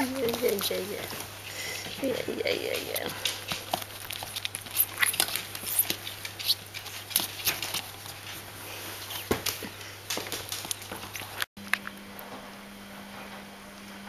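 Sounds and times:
puppy claws clicking: 2.7s - 8.2s, 9.4s - 11.5s.

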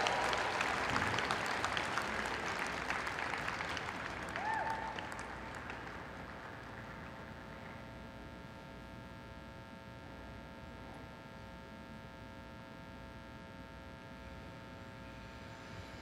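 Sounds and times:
applause: 0.0s - 8.2s
steady hum of even tones: 0.0s - 16.0s.

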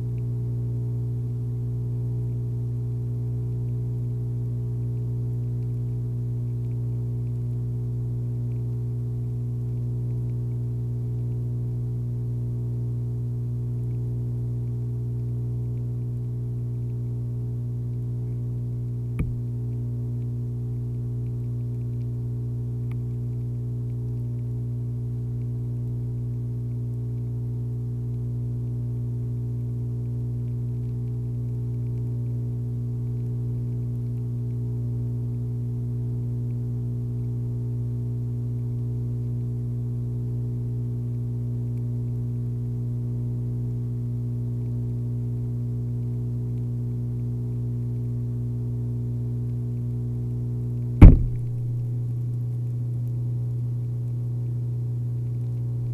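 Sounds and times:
low electrical hum: 0.0s - 55.9s
sharp click: 19.2s - 19.4s, 51.0s - 52.0s.

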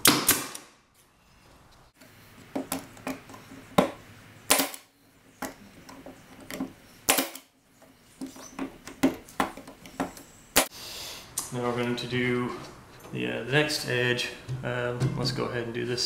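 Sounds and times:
pneumatic nailer firing: 0.0s - 0.8s, 4.5s - 4.9s, 7.1s - 7.5s.

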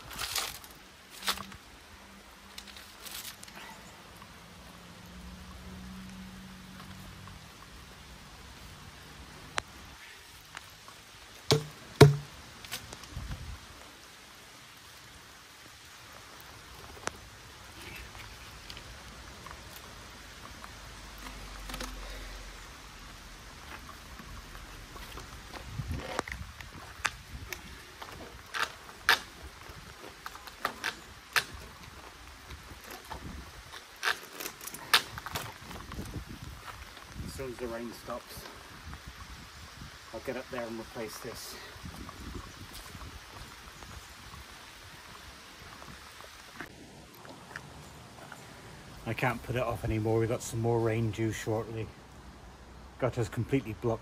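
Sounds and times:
light rain falling: 0.0s - 54.0s
plastic pipe knocked on ground: 11.5s - 12.4s.

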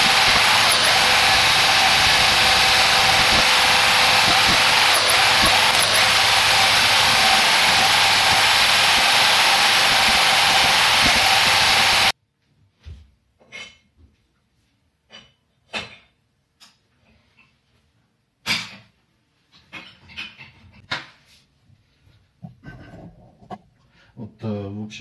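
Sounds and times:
core drill boring into wall: 0.0s - 12.1s
dust extraction running: 0.0s - 12.1s.

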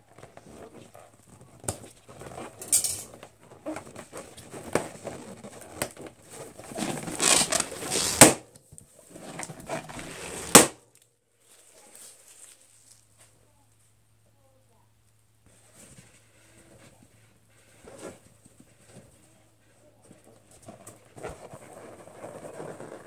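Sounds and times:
balloons rubbing and crinkling: 0.0s - 10.8s, 11.4s - 13.4s, 15.4s - 23.0s
balloon pops: 7.2s - 8.4s, 10.4s - 10.8s.

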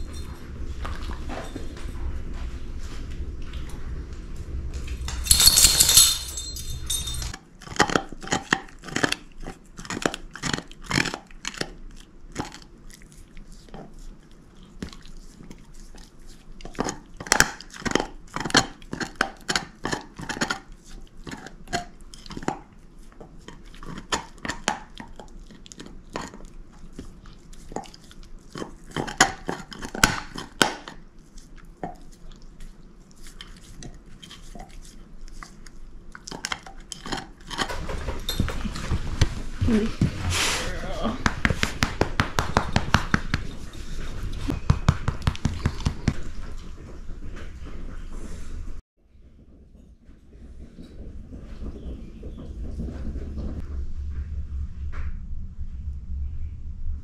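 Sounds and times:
loud scuffling: 4.8s - 7.4s
dog gnawing on a bone: 7.3s - 37.8s
low hum: 52.6s - 57.0s.

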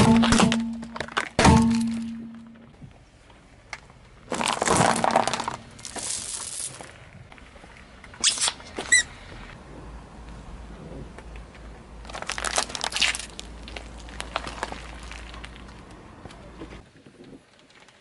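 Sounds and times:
plastic cracking under car tyre: 3.7s - 6.9s, 12.0s - 16.4s
brief high squeak: 8.2s - 9.1s.

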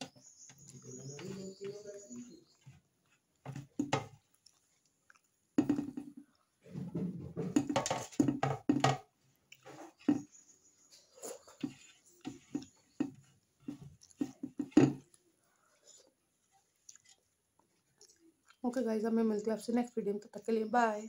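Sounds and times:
close chewing of food: 0.2s - 6.8s, 9.1s - 18.8s.

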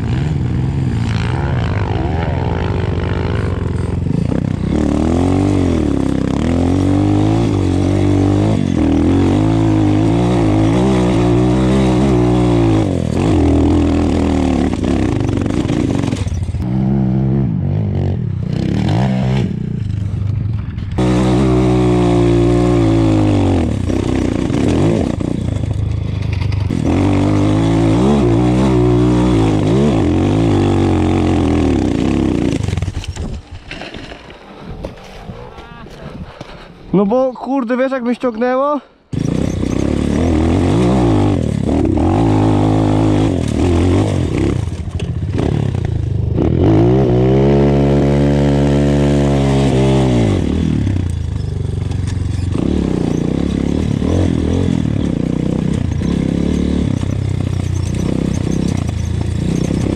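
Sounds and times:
motorbike engine revving: 0.0s - 33.5s, 39.1s - 59.9s.

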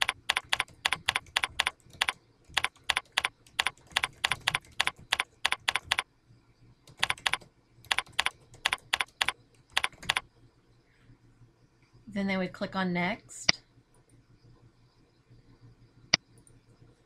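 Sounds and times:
typing on keyboard: 0.0s - 6.0s, 6.8s - 10.2s.

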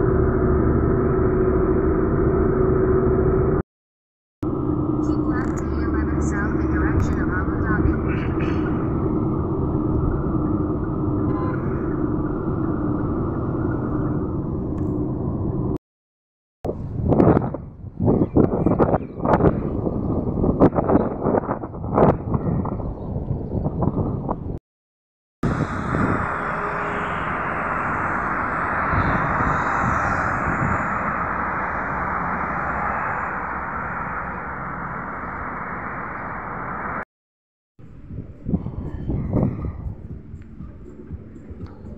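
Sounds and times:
car road and engine rumble: 25.4s - 37.0s.

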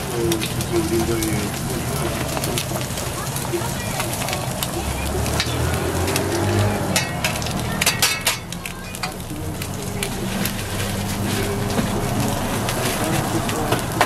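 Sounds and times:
eggs sizzling on griddle: 0.0s - 14.0s.

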